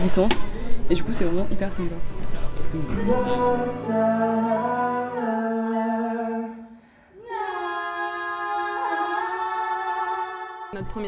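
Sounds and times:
woman and man singing duet: 2.9s - 10.9s.

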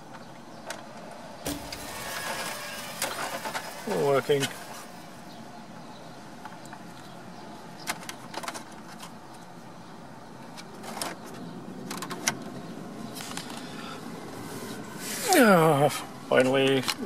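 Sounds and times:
heater blower fan running: 0.9s - 6.4s.

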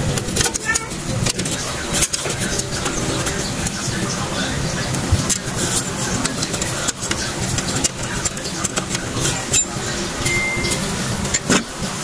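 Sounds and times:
short high beep: 10.2s - 10.9s.

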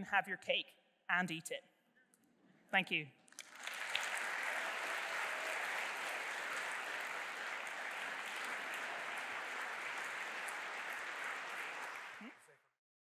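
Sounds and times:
crowd applauding: 3.4s - 12.5s.

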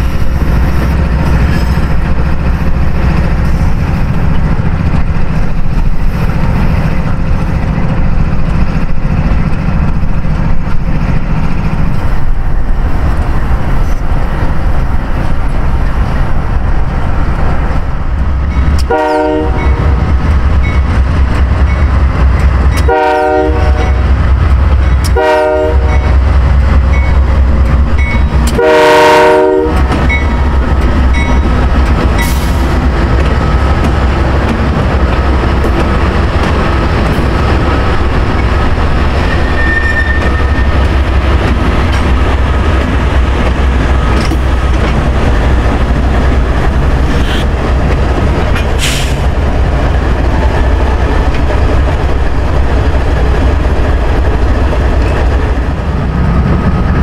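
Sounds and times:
diesel locomotive engine rumble: 0.0s - 57.0s
train wheels on rail: 0.0s - 57.0s
train air horn blasts: 18.9s - 20.0s, 22.8s - 24.0s, 25.1s - 26.2s, 28.5s - 30.0s.

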